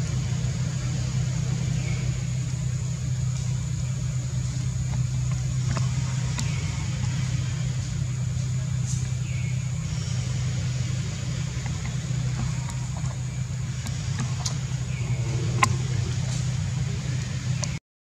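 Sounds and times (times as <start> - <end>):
low mechanical hum: 0.0 - 17.8
faint clicks: 4.5 - 8.0, 11.4 - 17.8.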